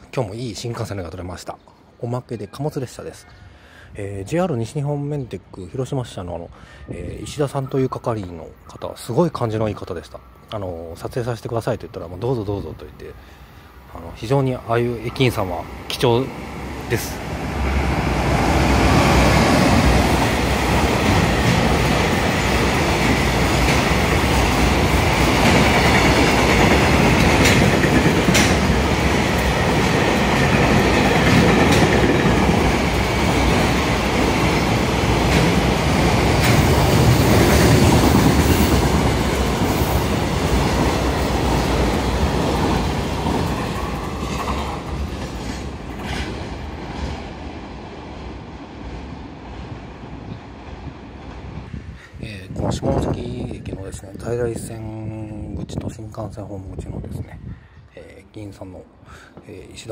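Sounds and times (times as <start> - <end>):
freight train passing: 7.2 - 54.0
wheels clicking on rail: 18.5 - 47.1.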